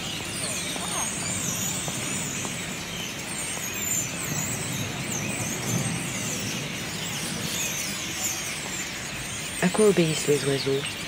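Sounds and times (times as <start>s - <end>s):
birds chirping: 0.0s - 11.0s
low rumble of city traffic: 0.0s - 11.0s.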